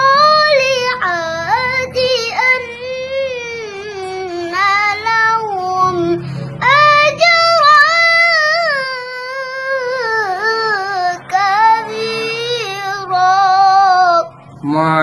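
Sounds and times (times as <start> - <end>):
boy chanting recitation: 0.0 - 15.0.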